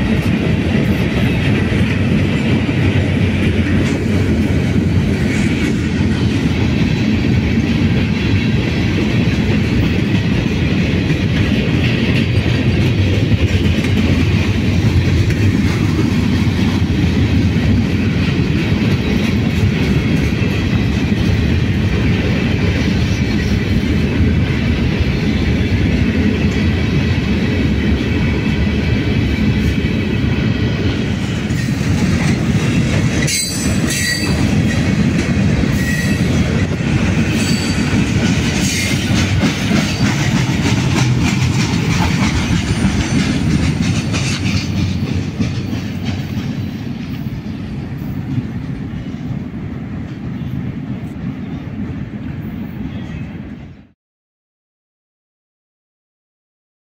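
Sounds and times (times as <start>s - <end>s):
train wheels rumbling on rails: 0.0s - 54.0s
wheel squeals: 37.3s - 38.0s.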